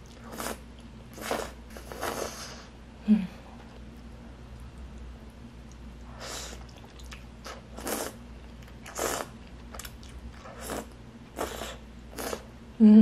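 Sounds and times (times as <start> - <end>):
person slurping noodles: 0.2 - 2.7, 7.5 - 8.2, 8.9 - 9.3, 10.4 - 12.5.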